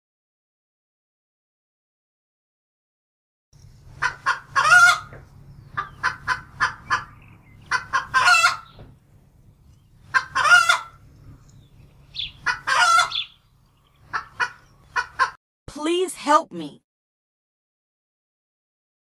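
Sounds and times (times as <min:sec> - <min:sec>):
low steady hum: 0:03.6 - 0:15.0
hen cackling: 0:03.9 - 0:08.9, 0:10.0 - 0:11.5, 0:12.1 - 0:15.4.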